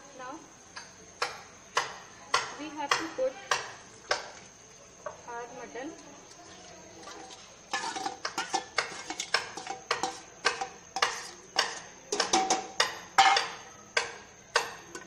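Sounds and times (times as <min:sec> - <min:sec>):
metal spoon clanking on bowl: 0:07.0 - 0:15.0.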